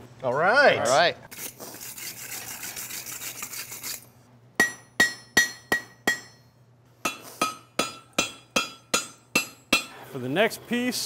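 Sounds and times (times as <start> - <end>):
hammer striking steel on anvil: 4.6 - 10.0.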